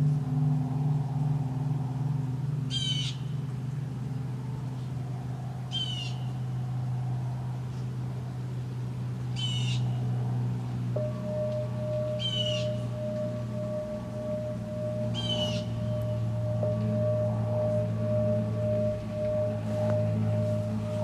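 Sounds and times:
low humming drone: 0.0s - 21.0s
high ringing tone: 10.0s - 21.0s
bird calls: 11.0s - 21.0s.

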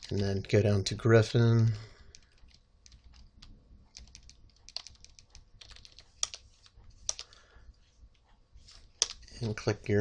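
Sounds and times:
computer keyboard typing: 2.0s - 7.4s.

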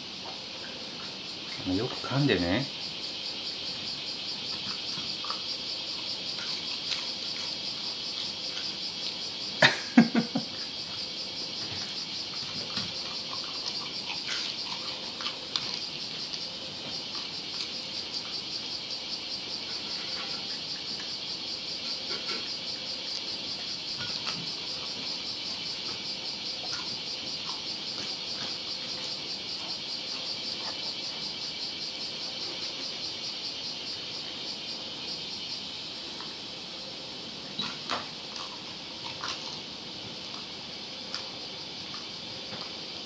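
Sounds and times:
insects chirring: 0.0s - 43.0s
dog crunching food: 3.7s - 9.4s, 10.8s - 18.7s, 23.1s - 30.9s, 37.6s - 42.8s.

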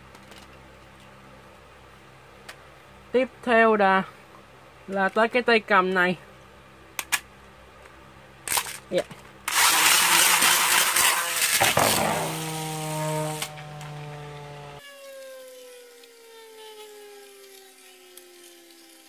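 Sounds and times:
spinning top launch rush: 9.5s - 15.6s
spinning top humming whine: 9.5s - 19.0s.

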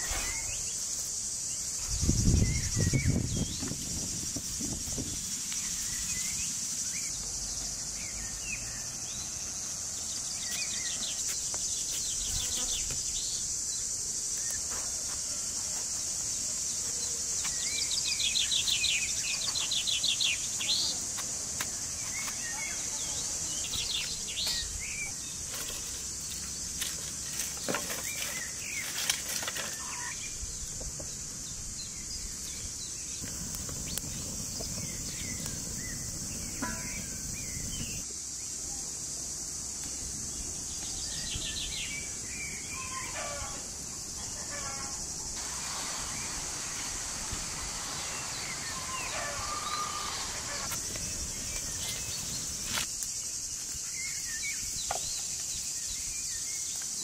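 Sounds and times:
insects droning: 0.0s - 57.0s
birds chirping and trilling: 27.2s - 38.0s, 40.6s - 45.1s, 46.0s - 52.8s.

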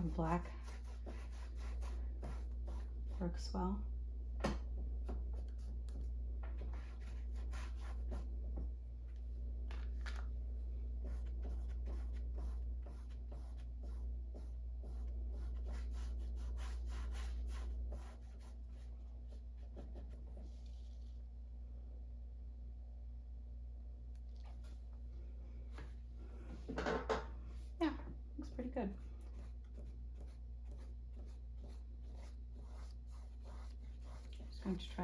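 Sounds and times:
paintbrush strokes on canvas: 0.0s - 3.6s, 5.1s - 8.4s, 10.9s - 21.3s, 28.9s - 35.0s
steady low hum: 0.0s - 35.0s.

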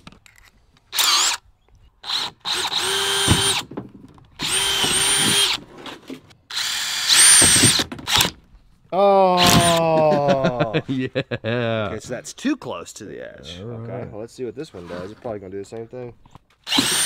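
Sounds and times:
cordless drill boring into plastic pipe: 0.9s - 1.4s, 2.0s - 3.7s, 4.4s - 5.6s, 6.5s - 8.4s, 16.6s - 17.0s.

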